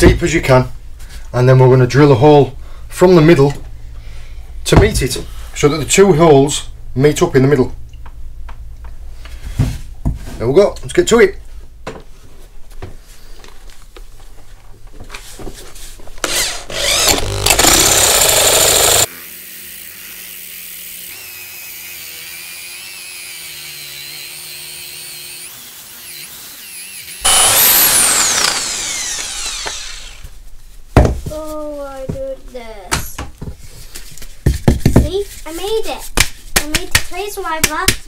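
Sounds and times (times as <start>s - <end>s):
power drill boring into wood: 16.2s - 19.1s, 25.4s - 30.4s.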